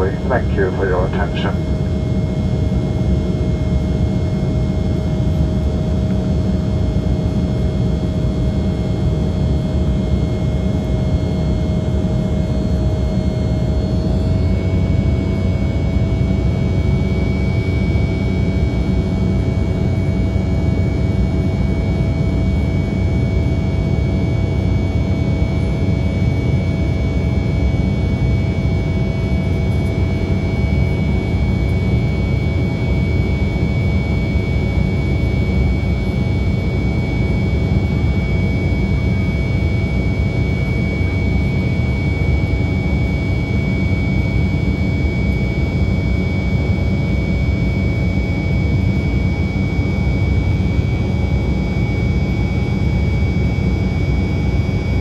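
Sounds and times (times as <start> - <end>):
jet engines roaring: 0.0 - 2.0.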